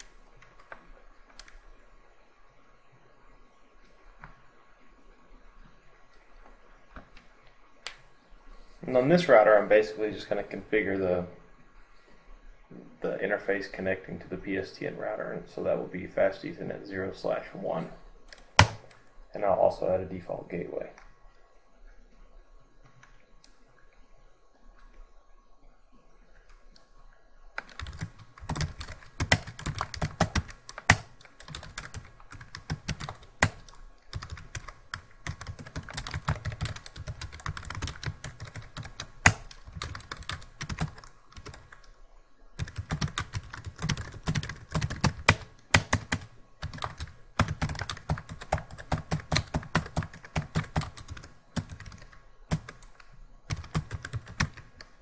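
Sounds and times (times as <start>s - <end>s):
computer keyboard typing: 0.0s - 1.6s, 18.3s - 19.0s, 27.6s - 41.9s, 42.6s - 55.0s.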